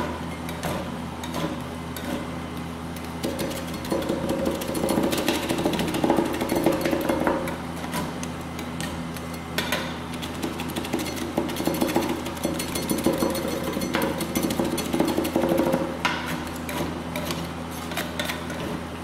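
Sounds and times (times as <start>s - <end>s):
metal spatulas chopping and scraping: 0.4s - 2.3s, 9.6s - 18.8s.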